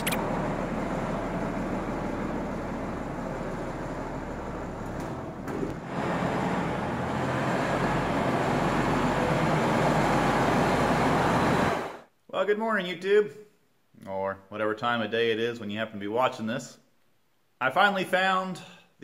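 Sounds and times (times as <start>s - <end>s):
tractor diesel engine running: 0.0s - 12.0s.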